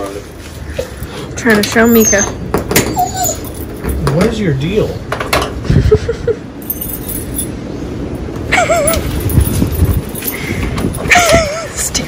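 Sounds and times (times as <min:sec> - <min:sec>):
dog whining: 0:01.7 - 0:03.9
keys jangling in a padlock: 0:03.2 - 0:04.0, 0:06.6 - 0:07.6, 0:08.8 - 0:11.4.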